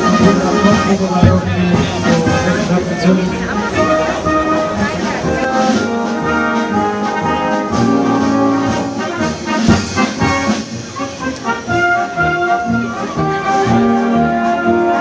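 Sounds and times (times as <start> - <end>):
low drum thump: 0.0 - 5.6
brass band playing: 0.0 - 15.0.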